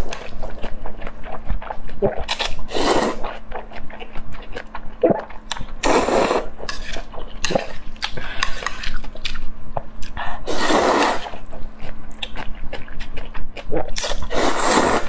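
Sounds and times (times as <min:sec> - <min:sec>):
wet chewing and lip-smacking: 0:00.0 - 0:02.6, 0:11.4 - 0:14.3
noodle slurp: 0:10.5 - 0:11.4, 0:13.8 - 0:15.0.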